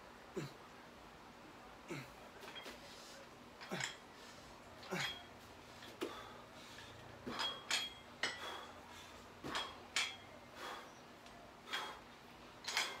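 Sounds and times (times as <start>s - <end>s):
dumbbells clinking: 2.4s - 2.8s, 3.6s - 4.1s, 4.8s - 8.8s, 9.4s - 10.8s, 11.7s - 12.0s, 12.6s - 13.0s.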